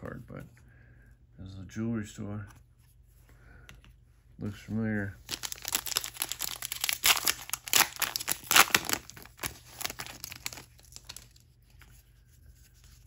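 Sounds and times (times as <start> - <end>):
plastic wrapper crinkling and tearing: 5.2 - 11.6.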